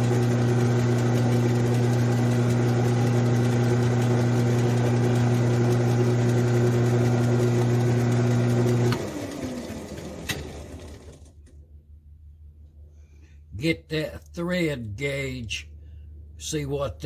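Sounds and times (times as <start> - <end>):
metal lathe motor humming: 0.0 - 11.2
lathe spinning down: 0.0 - 11.3.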